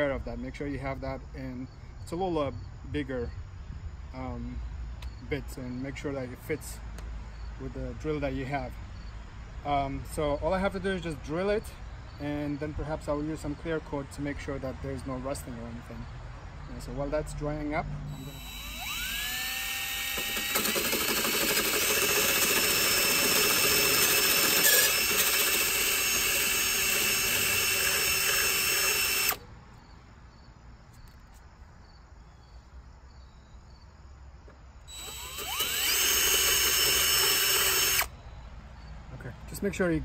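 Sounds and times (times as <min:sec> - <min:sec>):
cordless drill whining: 0:18.1 - 0:29.4, 0:34.9 - 0:38.1.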